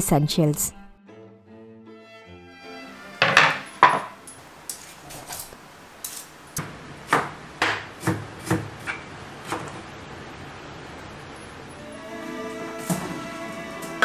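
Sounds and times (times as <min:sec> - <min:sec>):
knife chopping on wooden board: 0:06.6 - 0:09.8.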